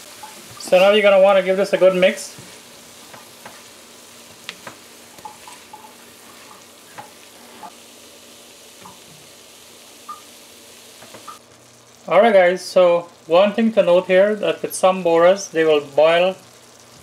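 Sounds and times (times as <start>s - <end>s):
food sizzling in a pan: 0.0s - 17.0s.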